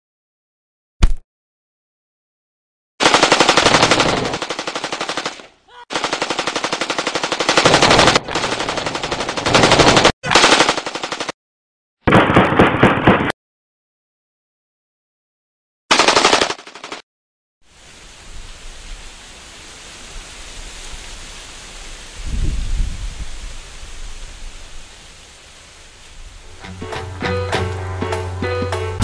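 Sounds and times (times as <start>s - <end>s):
automatic rifle fire: 3.0s - 11.4s, 15.9s - 17.0s.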